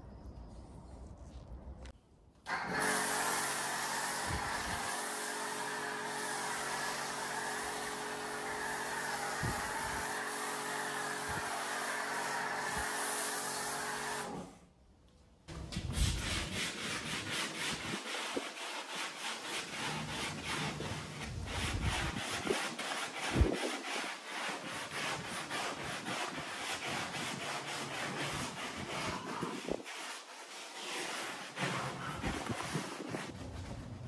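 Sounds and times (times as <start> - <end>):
pressure washer spraying: 2.5 - 14.4
hand scrubbing strokes: 2.8 - 14.4, 15.8 - 34.0.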